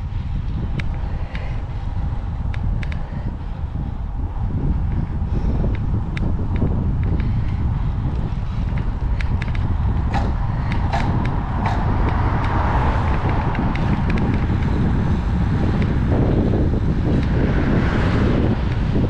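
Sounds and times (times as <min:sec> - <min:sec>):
wind buffeting microphone: 0:00.0 - 0:19.0
sharp ticks: 0:00.7 - 0:01.5, 0:02.4 - 0:03.1, 0:08.1 - 0:16.2.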